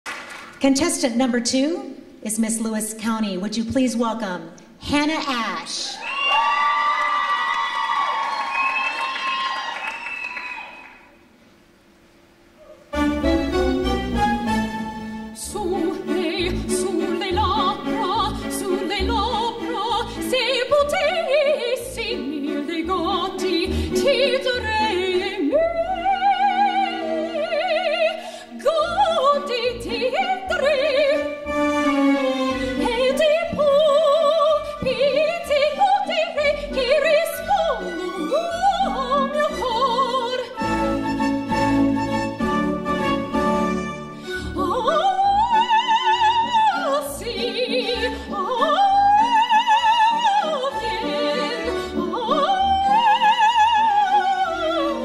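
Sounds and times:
instrumental accompaniment: 12.6 - 27.9, 28.8 - 55.0
woman singing operatically: 15.4 - 31.4, 32.5 - 41.3, 44.4 - 55.0.

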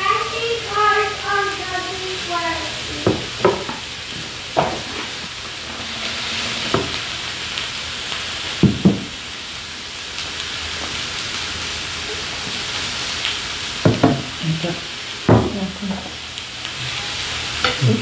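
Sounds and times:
meat sizzling on grill pan: 0.0 - 18.0
tableware knocks: 3.1 - 3.8.

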